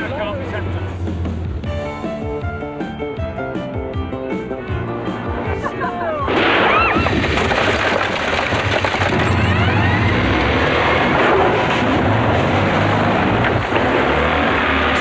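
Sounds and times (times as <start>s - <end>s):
car engine: 0.0s - 1.8s, 6.3s - 15.0s
music: 0.0s - 7.2s, 9.1s - 11.4s
road noise: 0.0s - 7.4s, 8.5s - 15.0s.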